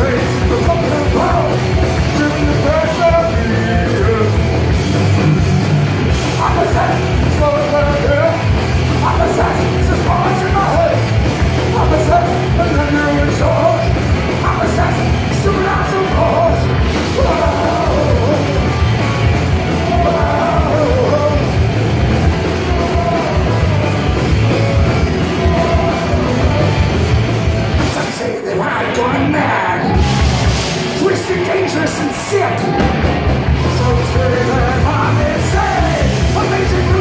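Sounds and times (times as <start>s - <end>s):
person singing: 0.0s - 4.5s, 11.7s - 18.9s, 19.5s - 21.6s, 22.2s - 37.0s
distorted electric guitars: 0.0s - 37.0s
drums: 0.0s - 37.0s.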